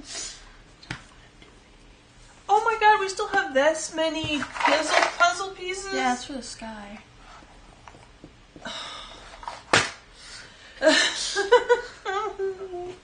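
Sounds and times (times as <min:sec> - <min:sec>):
jigsaw pieces rattling in box: 0:04.4 - 0:05.4.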